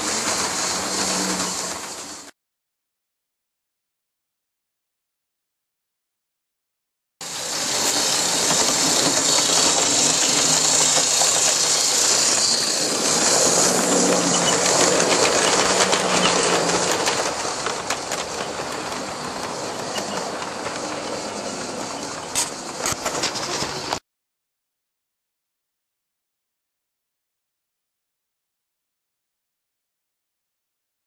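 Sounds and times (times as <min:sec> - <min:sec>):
model train hum and rumble: 0:00.0 - 0:02.3, 0:07.2 - 0:24.0.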